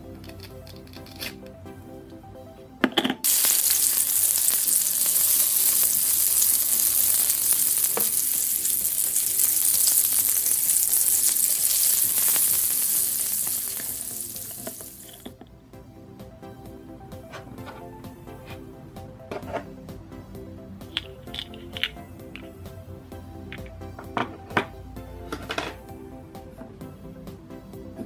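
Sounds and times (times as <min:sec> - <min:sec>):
food sizzling on grill: 0:03.2 - 0:15.3.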